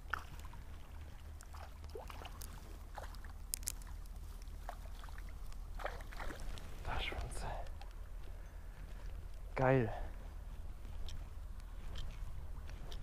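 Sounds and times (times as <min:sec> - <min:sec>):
small water splashes: 0:00.0 - 0:06.8.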